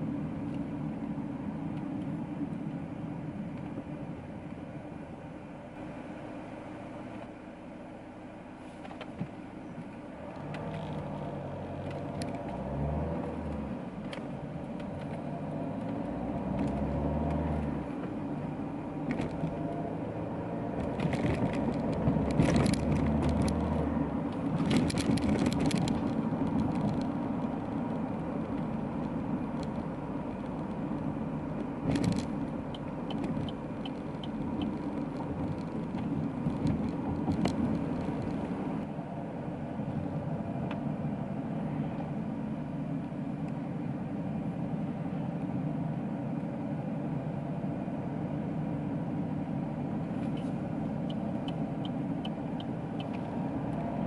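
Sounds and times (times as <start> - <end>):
road noise inside car: 0.0 - 54.0
diesel engine accelerating: 9.3 - 54.0.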